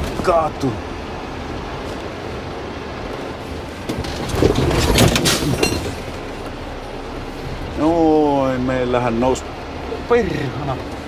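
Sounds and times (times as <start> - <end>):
truck engine rumble: 0.0 - 11.0
truck knocking and clattering: 3.8 - 6.6.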